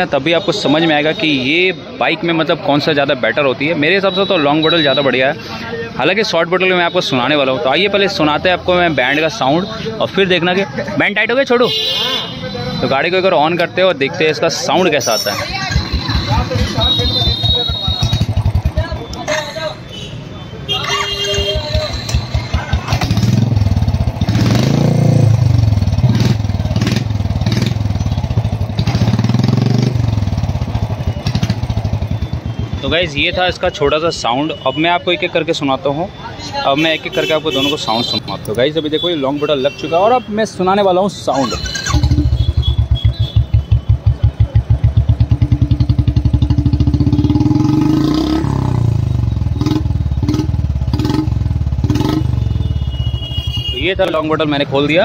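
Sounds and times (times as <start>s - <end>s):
motorcycle engine revving: 15.2s - 19.4s, 21.4s - 33.0s, 41.4s - 53.8s.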